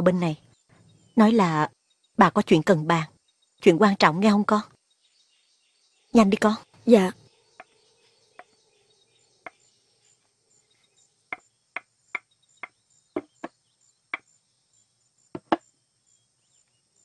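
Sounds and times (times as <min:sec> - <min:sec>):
crickets chirping: 0:00.0 - 0:17.0
sharp short knocks: 0:11.3 - 0:14.3, 0:15.3 - 0:15.6.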